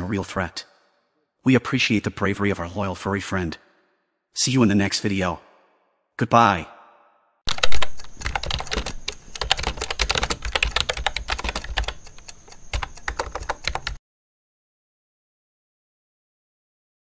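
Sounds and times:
fast keyboard typing: 7.5 - 14.0.

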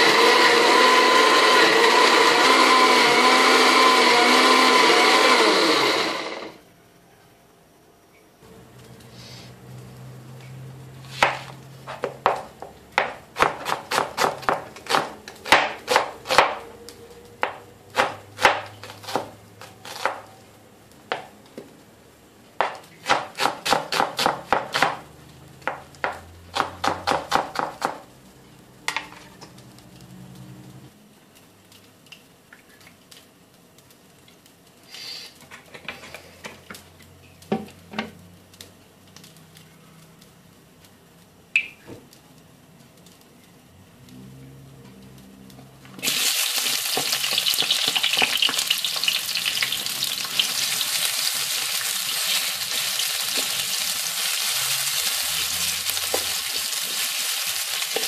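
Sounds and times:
knife chopping on cutting board: 11.1 - 16.6, 17.4 - 20.2.

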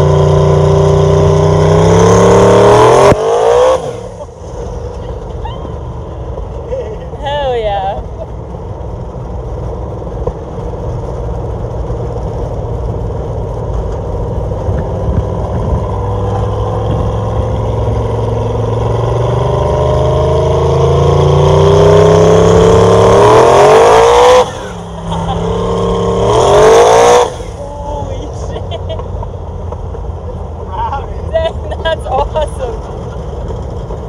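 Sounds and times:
pickup engine accelerating: 0.0 - 34.0.

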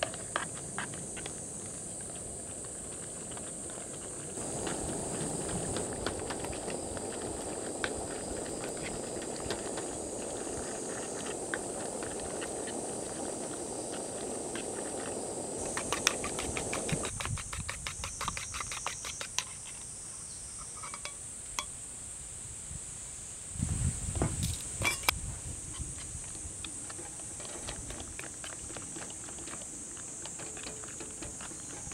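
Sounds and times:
camp stove burner hissing: 0.0 - 21.7, 24.4 - 31.9
insects droning: 0.0 - 31.9
tongs tapping metal tin: 30.3 - 31.9.

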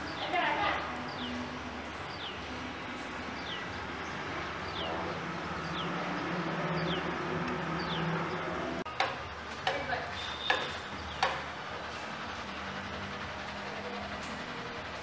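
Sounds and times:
bird chirping: 2.1 - 2.5, 7.8 - 8.4.

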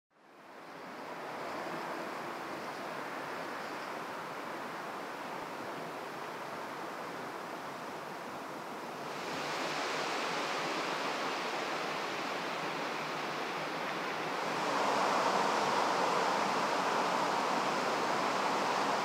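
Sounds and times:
distant motorway traffic roar: 9.0 - 19.0.

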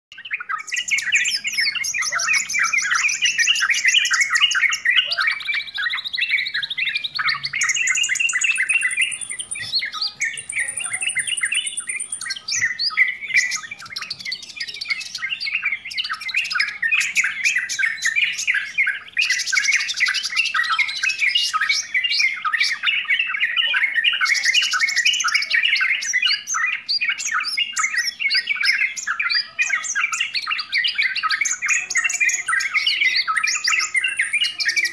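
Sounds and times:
birds chattering and chirping: 0.1 - 34.9
high bird whistles: 0.1 - 34.9
buzzy bird trilling: 0.4 - 21.3.

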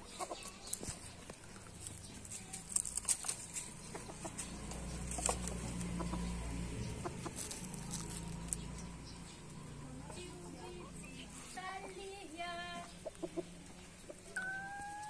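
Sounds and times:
chickens clucking: 0.0 - 15.0
pecking clicks and scratches: 0.4 - 8.9.

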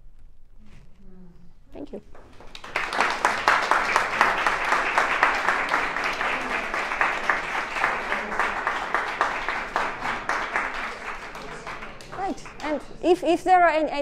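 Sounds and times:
audience applauding: 2.1 - 13.3.

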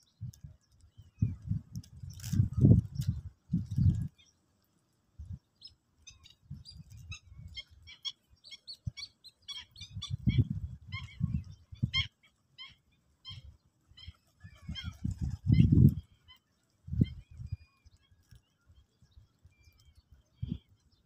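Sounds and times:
sparrows chirping: 5.2 - 21.0.

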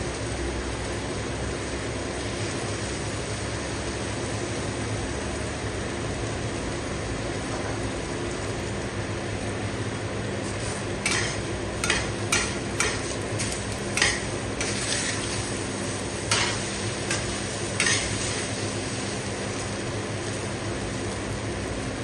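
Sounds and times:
frying hiss: 0.0 - 22.0
metal spatula scraping frying pan: 11.0 - 15.5, 16.3 - 18.5.

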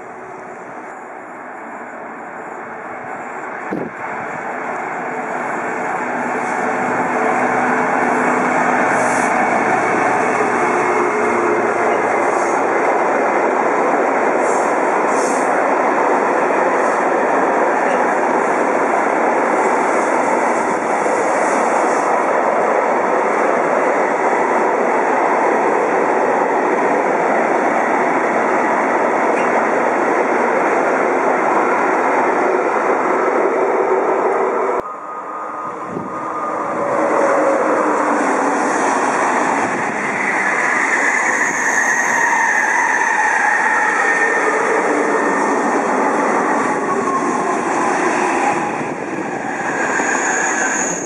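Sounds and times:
high-speed train passing: 0.0 - 51.0
freight train wheels rumbling: 2.7 - 34.9
steady high tone: 34.8 - 37.4.

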